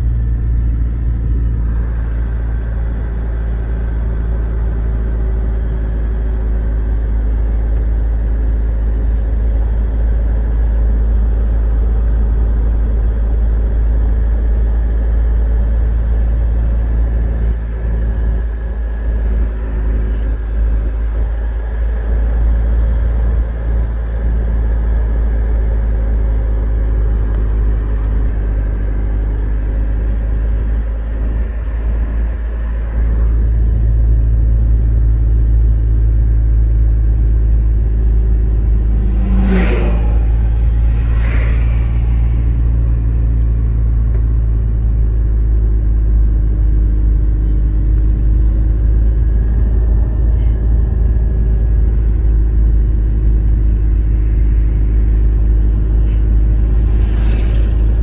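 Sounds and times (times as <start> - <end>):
car engine and road rumble: 0.0 - 58.0
passing traffic whooshes: 37.0 - 45.5, 53.8 - 58.0.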